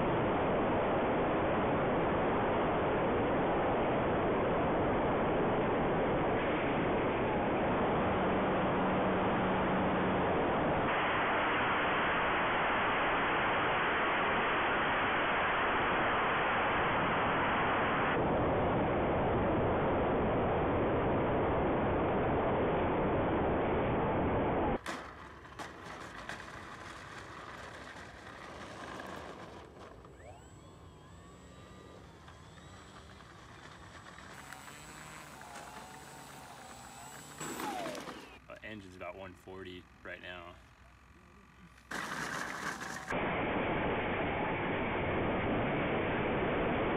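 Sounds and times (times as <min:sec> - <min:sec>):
faint whines rising and falling: 0:00.0 - 0:46.9
wind and propeller noise: 0:00.0 - 0:46.9.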